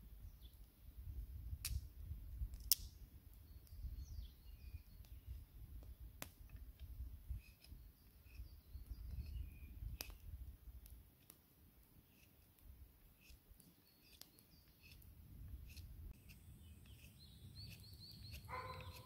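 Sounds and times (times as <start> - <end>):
faint bird chirps: 3.4 - 6.0, 7.3 - 10.4, 13.2 - 19.0
knife whittling wooden stick: 13.2 - 13.4, 14.0 - 19.0.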